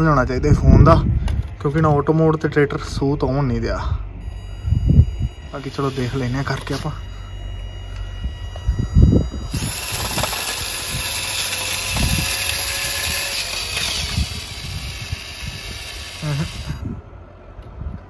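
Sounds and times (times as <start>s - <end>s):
small electric motor whirring: 4.2s - 16.9s.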